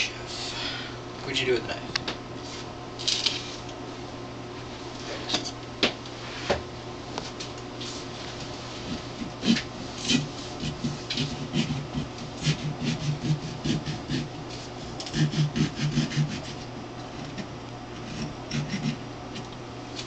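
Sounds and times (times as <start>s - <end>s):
knife cutting watermelon rind: 9.4s - 14.3s.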